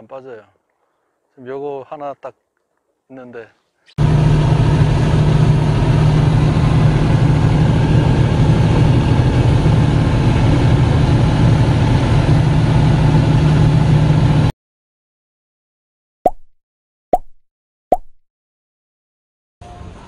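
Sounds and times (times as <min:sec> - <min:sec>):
boat engine droning: 0:04.0 - 0:14.5.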